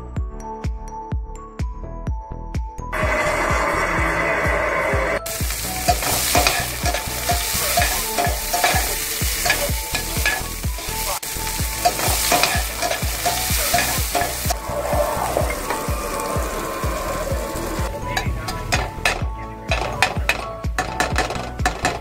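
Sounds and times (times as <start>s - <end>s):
vegetables sizzling in hot oil: 5.2s - 17.9s.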